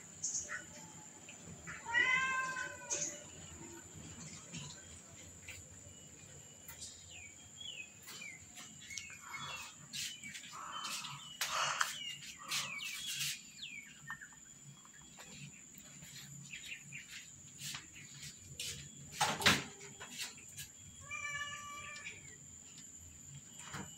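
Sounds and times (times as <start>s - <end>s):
small birds chirping: 0.0s - 23.9s.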